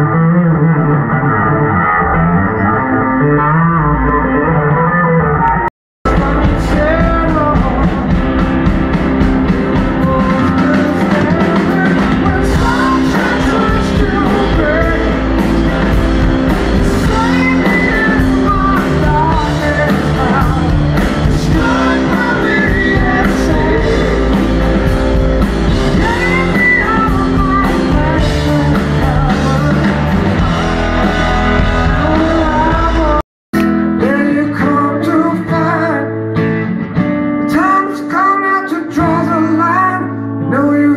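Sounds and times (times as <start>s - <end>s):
person singing: 0.0s - 8.8s, 9.6s - 36.6s, 37.4s - 40.9s
acoustic guitar: 0.0s - 40.9s
bass guitar: 0.0s - 40.9s
electric guitar: 0.0s - 40.9s
man singing lead vocal: 6.0s - 8.9s, 9.6s - 36.6s, 37.4s - 40.9s
drum kit: 6.0s - 35.7s.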